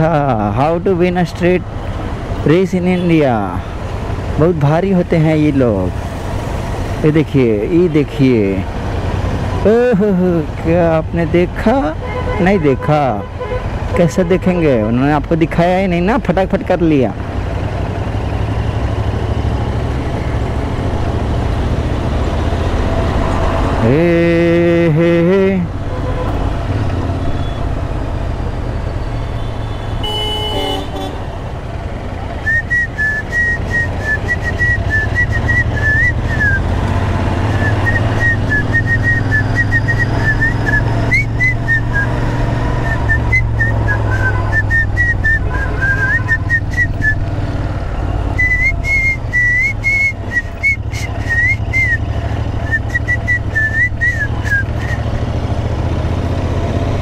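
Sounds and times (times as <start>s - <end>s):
horn toot: 29.5s - 31.2s
high whistled tune: 32.4s - 36.6s, 37.4s - 42.2s, 42.8s - 47.2s, 48.3s - 55.0s.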